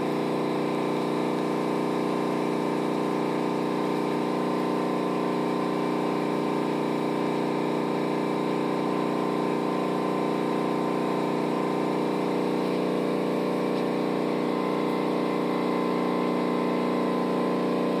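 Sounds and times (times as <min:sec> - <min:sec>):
steady mechanical hum: 0:00.0 - 0:18.0.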